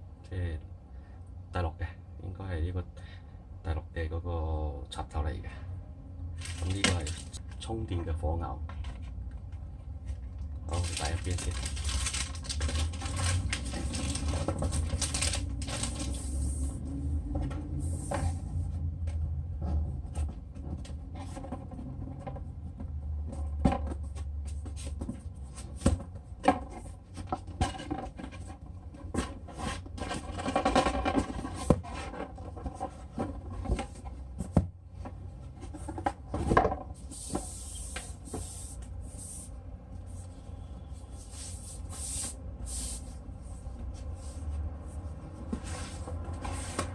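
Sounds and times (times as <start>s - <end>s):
plastic bag crinkling: 6.4s - 7.4s, 10.7s - 16.2s
cardboard boxes being handled: 41.0s - 46.9s.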